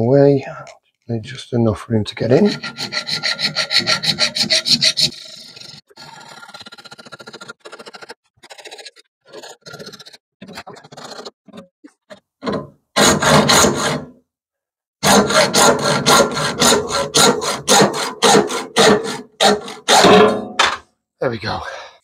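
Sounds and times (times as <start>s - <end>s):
hacksaw cutting brass: 2.4s - 5.8s, 12.4s - 14.1s, 15.0s - 20.7s.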